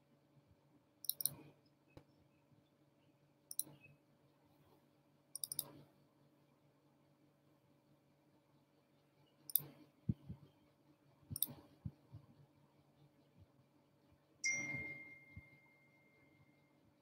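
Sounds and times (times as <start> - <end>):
faint low hum: 0.0 - 17.0
computer mouse clicking: 1.0 - 1.5, 3.5 - 3.8, 5.4 - 5.8, 9.5 - 9.9, 11.3 - 11.8.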